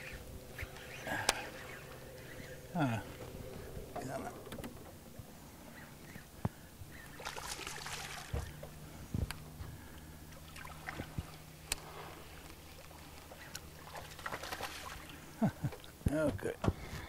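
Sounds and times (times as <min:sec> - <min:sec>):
fish thrashing in water: 0:07.2 - 0:08.6, 0:13.7 - 0:15.2.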